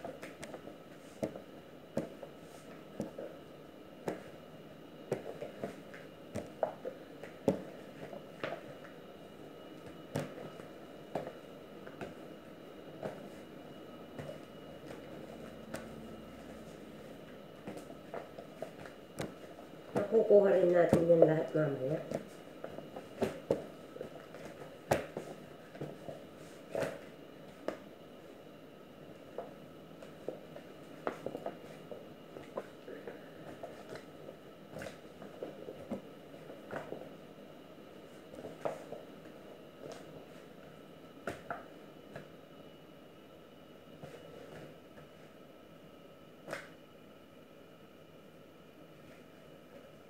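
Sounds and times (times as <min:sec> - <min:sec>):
dough slapping and thudding: 0:05.1 - 0:08.7, 0:09.8 - 0:12.2, 0:17.1 - 0:21.2, 0:22.0 - 0:26.0
hands kneading dough: 0:09.7 - 0:27.9.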